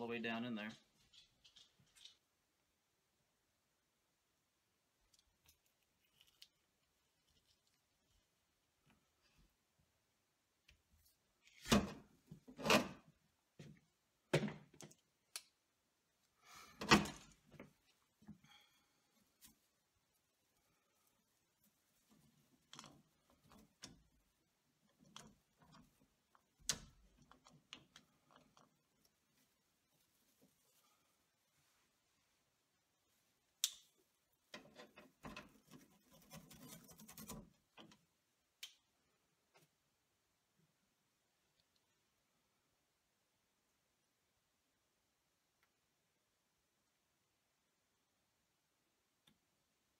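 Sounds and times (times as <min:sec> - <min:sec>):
wires scraping and rustling: 0:00.8 - 0:02.5, 0:05.1 - 0:09.4, 0:17.2 - 0:32.4, 0:34.2 - 0:38.1.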